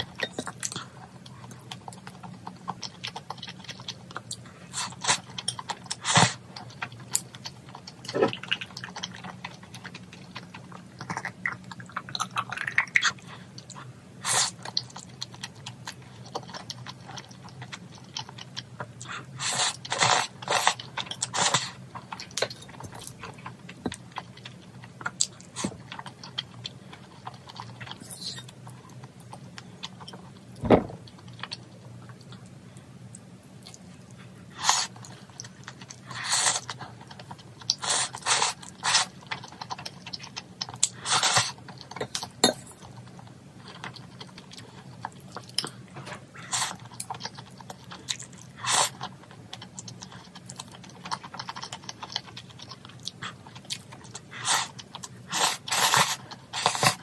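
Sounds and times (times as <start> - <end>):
chewing: 0.0 - 30.4, 31.1 - 57.0
slurping noodles: 55.3 - 57.0.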